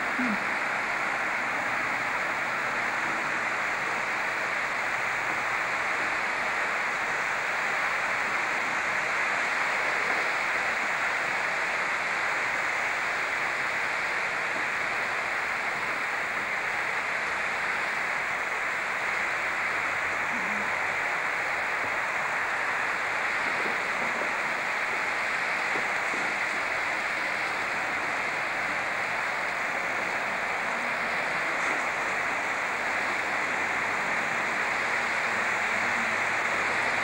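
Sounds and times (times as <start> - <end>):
videotape hiss: 0.0 - 37.0.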